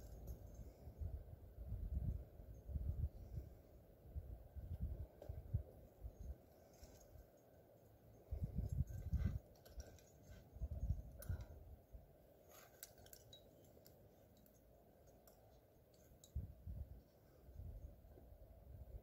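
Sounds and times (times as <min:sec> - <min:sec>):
faint clicks and scratches: 0:06.2 - 0:11.6, 0:12.4 - 0:16.4.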